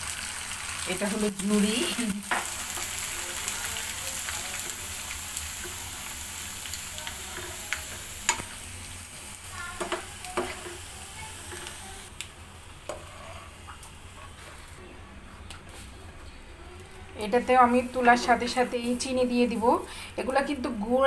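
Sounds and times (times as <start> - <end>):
dough sizzling in hot oil: 0.0 - 14.8.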